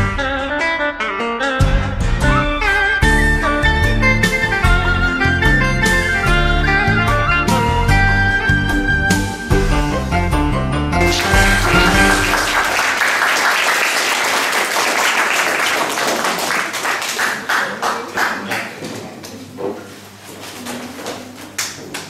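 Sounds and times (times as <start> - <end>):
dance music: 11.0 - 13.0
audience applause: 11.0 - 18.8.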